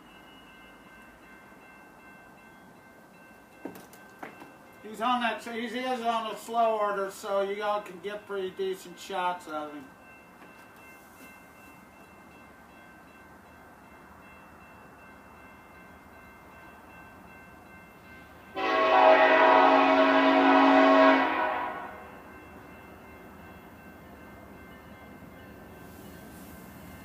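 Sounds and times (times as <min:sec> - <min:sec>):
locomotive air horn blast: 0:18.6 - 0:22.1.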